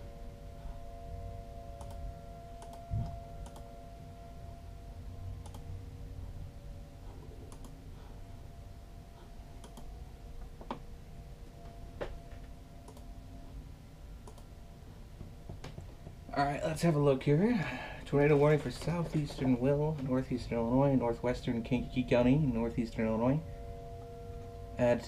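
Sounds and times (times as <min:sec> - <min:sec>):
steady low rumble: 0:00.0 - 0:25.0
keyboard and mouse clicks: 0:01.8 - 0:02.0, 0:02.6 - 0:03.7, 0:05.4 - 0:05.6, 0:07.4 - 0:07.8, 0:09.6 - 0:09.9, 0:12.8 - 0:13.1, 0:14.2 - 0:14.5.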